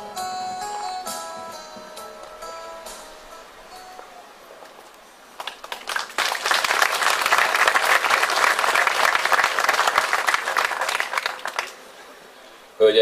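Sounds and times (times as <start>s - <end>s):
audience applause: 4.8s - 12.4s.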